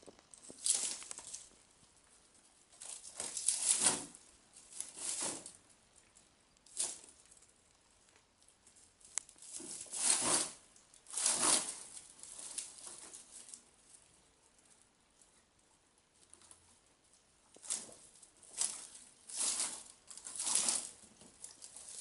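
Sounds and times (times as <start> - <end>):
needles and straw rustling: 0.0 - 5.6, 8.8 - 14.0, 17.6 - 22.0.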